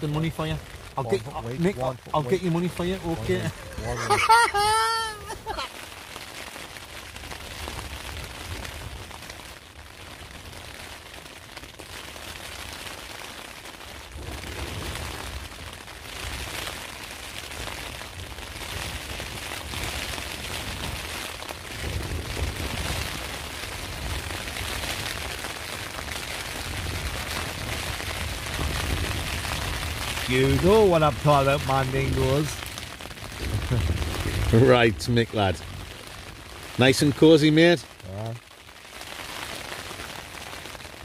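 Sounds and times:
wind gusts: 0:00.0 - 0:06.0, 0:14.0 - 0:38.4
rain on tent fabric: 0:00.0 - 0:41.0.

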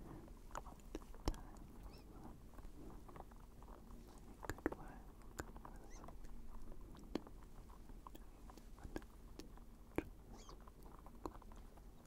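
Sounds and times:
wet mouth clicks: 0:00.5 - 0:01.7, 0:03.1 - 0:11.6
person whispering: 0:00.9 - 0:02.4, 0:04.5 - 0:06.2.

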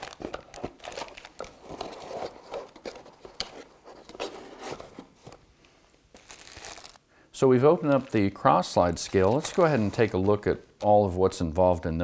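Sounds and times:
plastic bags crinkling: 0:00.0 - 0:03.4, 0:06.1 - 0:07.0, 0:07.8 - 0:10.5.

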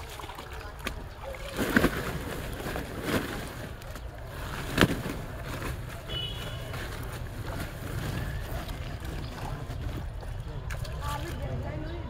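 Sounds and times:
plastic sack being handled: 0:01.3 - 0:10.2.

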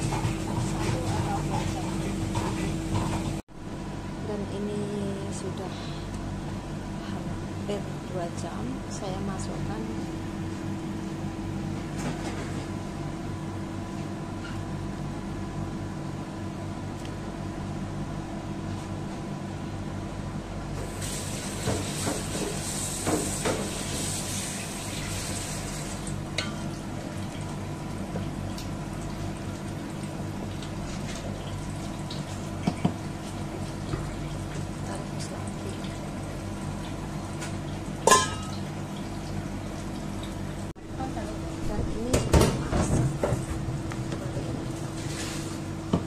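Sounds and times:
steady hum: 0:00.0 - 0:20.9, 0:25.8 - 0:46.0.

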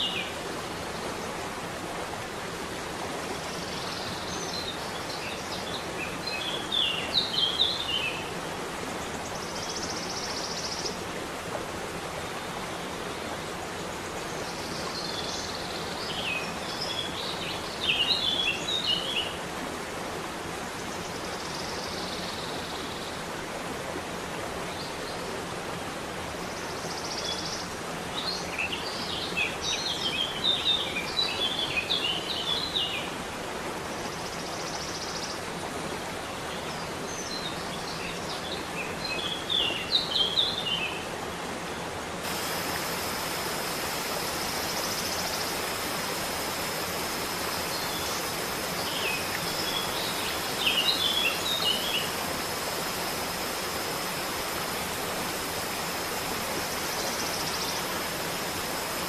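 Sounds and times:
waterfall rushing: 0:00.0 - 0:21.4, 0:27.4 - 0:59.0
birds chirping: 0:42.3 - 0:59.0.

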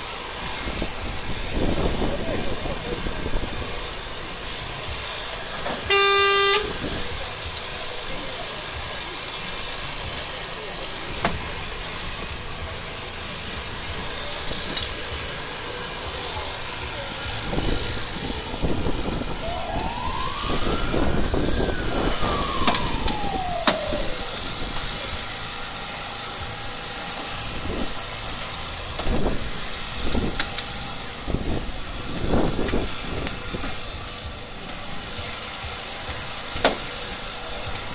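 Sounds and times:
hydraulic pump running: 0:00.0 - 0:37.9
rising and falling whine: 0:02.8 - 0:08.1, 0:09.4 - 0:28.8.

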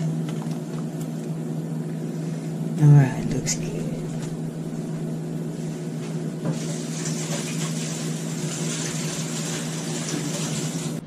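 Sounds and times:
steady low hum: 0:00.0 - 0:11.0
water running from tap: 0:06.5 - 0:11.0.

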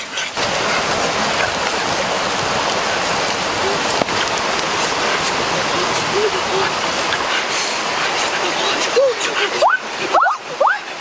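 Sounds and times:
fish sizzling over fire: 0:00.3 - 0:07.8
wood fire crackles and pops: 0:00.4 - 0:06.3.

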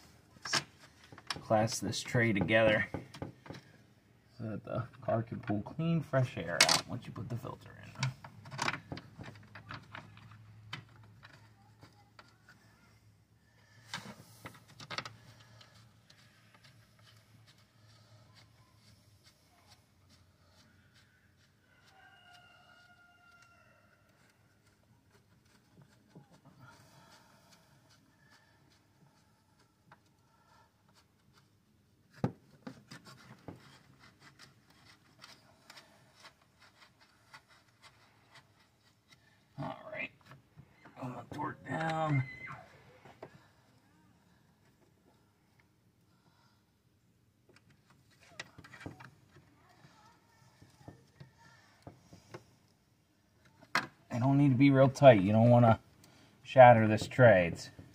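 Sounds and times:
plastic clicking and rubbing: 0:24.1 - 0:26.6, 0:30.8 - 0:39.6, 0:47.5 - 0:52.5.

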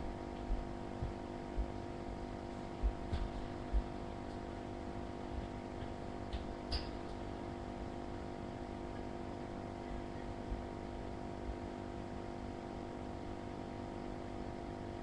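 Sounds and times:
steady hum: 0:00.0 - 0:15.0
dull low thumps: 0:00.4 - 0:01.8, 0:02.8 - 0:04.2.

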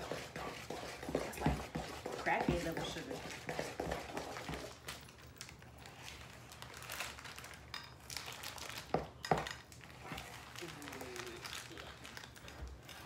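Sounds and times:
spoon scraping plastic bowl: 0:00.0 - 0:04.8
plastic wrapper crinkling: 0:04.8 - 0:13.0.

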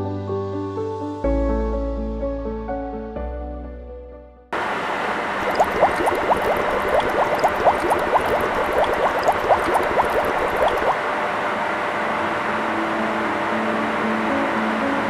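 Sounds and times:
water rushing through pipes: 0:05.3 - 0:11.0
air bubbles gurgling: 0:05.4 - 0:11.0.

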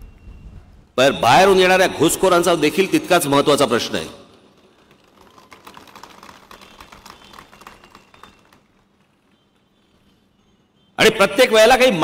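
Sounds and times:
faint scattered clapping: 0:04.5 - 0:10.2.

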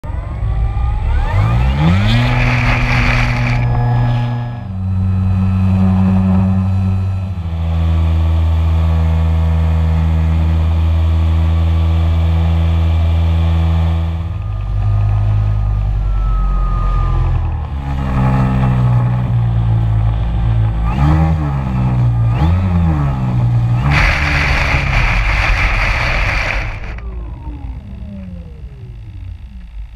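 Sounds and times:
model plane electric motor and propeller: 0:00.1 - 0:29.9
float sliding through grass: 0:02.0 - 0:04.2, 0:23.8 - 0:27.0.

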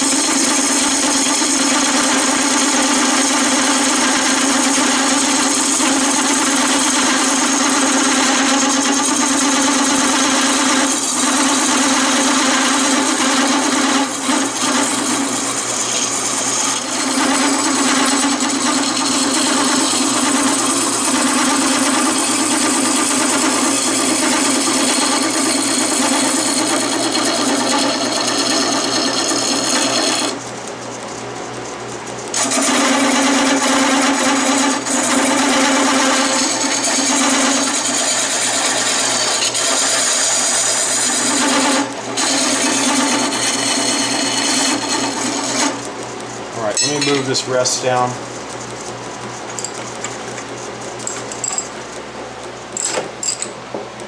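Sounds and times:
wood lathe humming: 0:00.0 - 0:30.7, 0:32.3 - 0:52.0
scraper cutting spinning wood: 0:00.0 - 0:52.6.

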